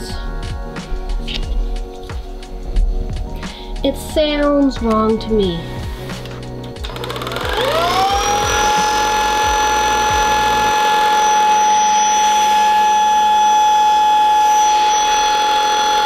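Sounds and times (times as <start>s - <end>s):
stick vacuum whining on carpet: 6.8s - 16.0s.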